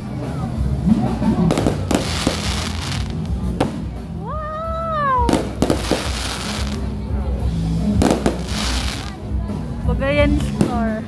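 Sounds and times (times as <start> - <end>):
fireworks bangs: 1.5 - 4.0, 5.2 - 6.9, 8.0 - 9.2.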